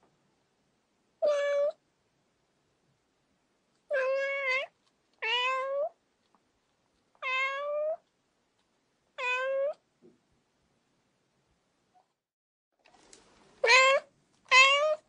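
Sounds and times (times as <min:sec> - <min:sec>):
cat meowing: 0:01.2 - 0:01.8, 0:03.9 - 0:06.0, 0:07.2 - 0:08.0, 0:09.2 - 0:09.8, 0:13.6 - 0:15.0.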